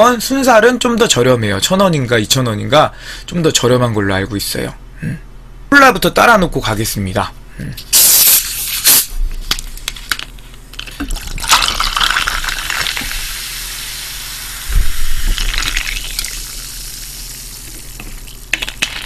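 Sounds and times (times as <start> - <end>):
carbonation fizzing: 10.8 - 19.0
cola gushing into a glass: 11.0 - 18.4.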